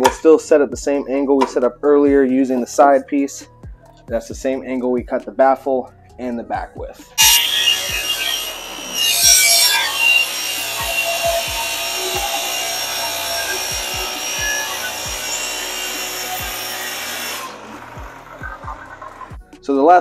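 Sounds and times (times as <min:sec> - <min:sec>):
table saw ripping wooden board: 0:07.2 - 0:19.2.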